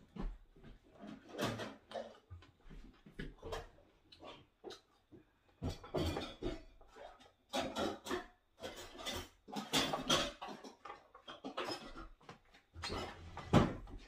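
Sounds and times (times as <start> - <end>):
spoons and dishes clattering: 5.6 - 12.2.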